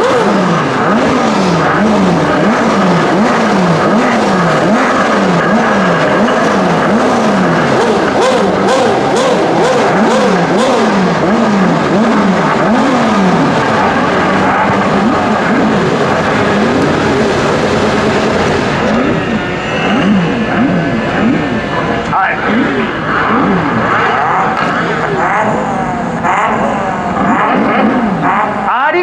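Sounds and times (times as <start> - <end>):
race car engines revving: 0.0 - 29.0.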